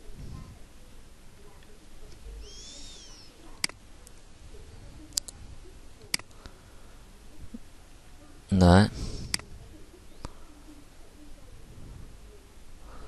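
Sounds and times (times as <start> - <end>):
faint room hiss: 0.0 - 13.0
computer mouse clicking: 3.6 - 4.2, 5.1 - 5.4, 6.0 - 6.3.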